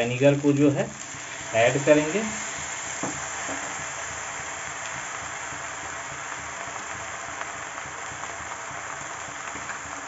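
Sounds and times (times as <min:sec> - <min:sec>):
noodles sizzling in a pan: 0:00.0 - 0:10.0.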